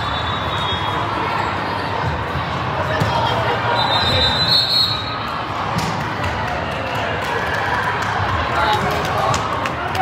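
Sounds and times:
referee's whistle: 0.0 - 1.0, 3.7 - 5.2
crowd chatter in echoing hall: 0.0 - 10.0.

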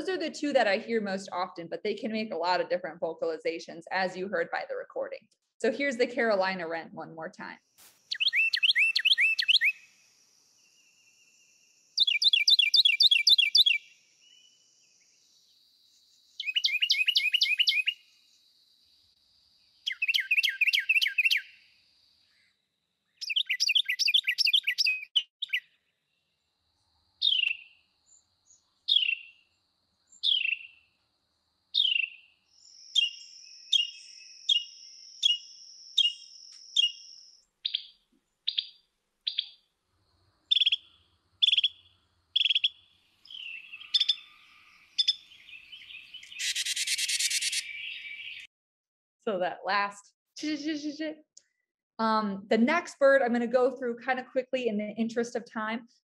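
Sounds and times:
bird sharp chattering calls: 7.8 - 9.8, 12.0 - 13.9, 16.4 - 18.0, 19.8 - 21.6, 23.2 - 25.6, 30.2 - 30.8, 40.5 - 48.5.

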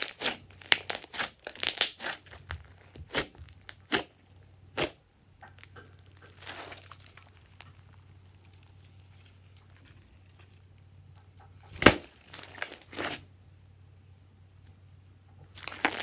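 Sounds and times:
slime squished by hand: 0.0 - 10.6, 11.6 - 13.2.

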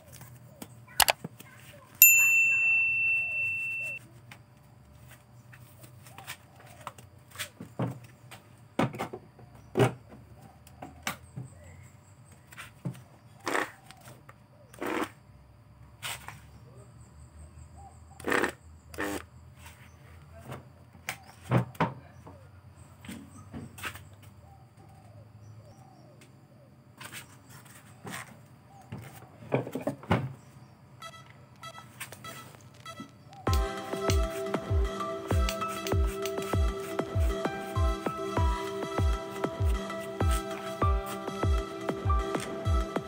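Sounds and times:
short electronic chime: 2.0 - 4.0.

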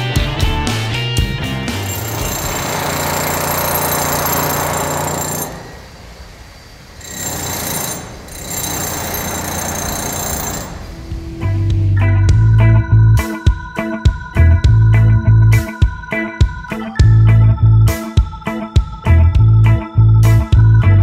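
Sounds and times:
wheel loader diesel engine running: 1.7 - 13.1.

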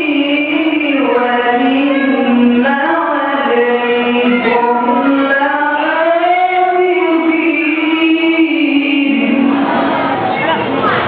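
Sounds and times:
man chanting: 0.0 - 5.9.

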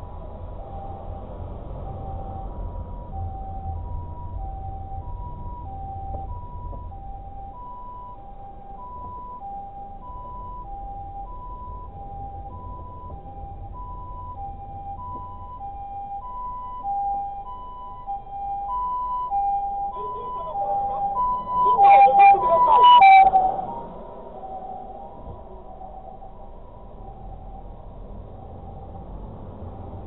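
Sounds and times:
car road noise rumble: 0.0 - 30.0
two-tone ambulance siren: 0.0 - 30.0.

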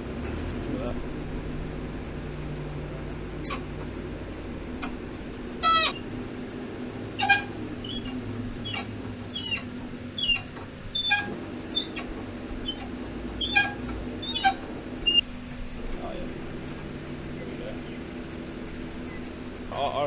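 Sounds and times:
workshop hum: 0.0 - 20.0
metal on metal squeaks: 3.4 - 3.8, 5.6 - 6.1, 7.1 - 15.2.

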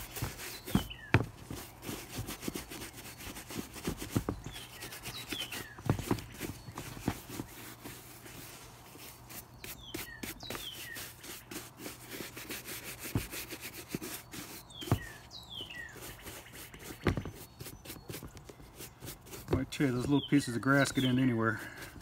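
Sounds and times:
bird chirping: 0.0 - 1.8, 4.2 - 8.4, 9.0 - 11.6, 13.9 - 21.9
brush scrubbing leather boot: 0.0 - 22.0.

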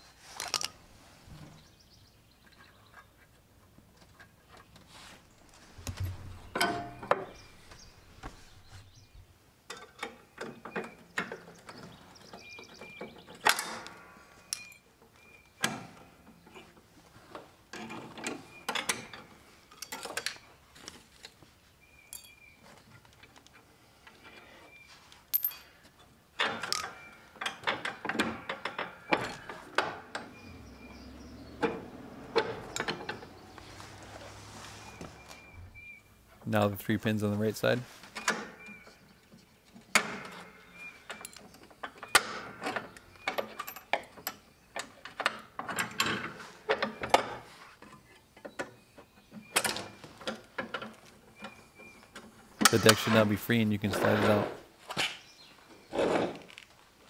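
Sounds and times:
metal pins clinking and rattling: 5.8 - 8.0, 25.3 - 25.8, 26.4 - 33.7, 39.9 - 47.4.

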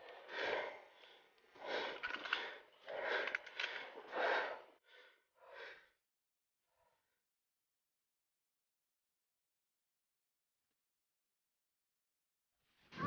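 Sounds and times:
person breathing heavily: 0.0 - 6.0.

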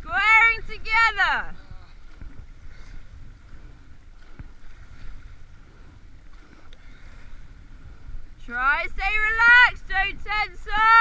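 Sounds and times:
water washing along a hull: 0.0 - 11.0
wind rumble on microphone: 0.0 - 11.0.

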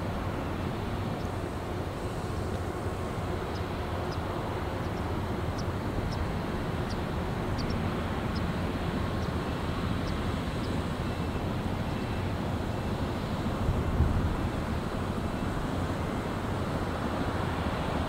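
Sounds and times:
ship engines droning: 0.0 - 18.0
faint high ticks: 3.5 - 8.5, 10.0 - 10.8.

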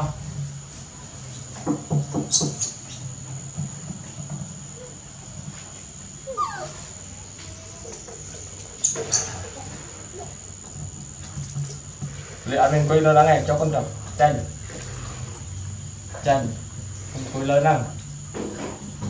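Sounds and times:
baby monkey whimpering and squeaking: 6.3 - 6.8.

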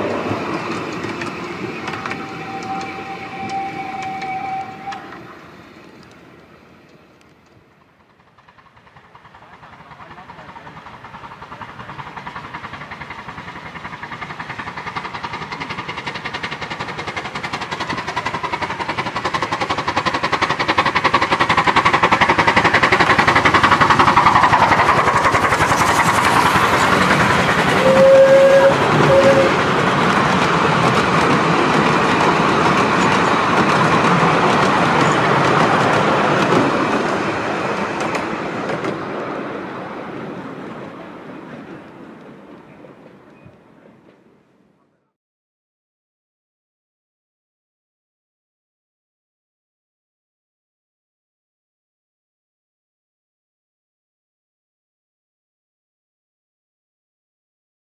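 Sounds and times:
miniature steam train passing: 0.0 - 45.0
short whistle tone: 1.9 - 5.2, 27.8 - 29.5.

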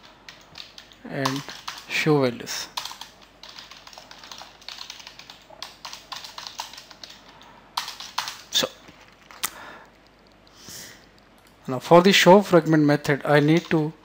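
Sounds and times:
typing on computer keyboard: 0.0 - 1.9, 2.8 - 8.5, 13.4 - 13.8.

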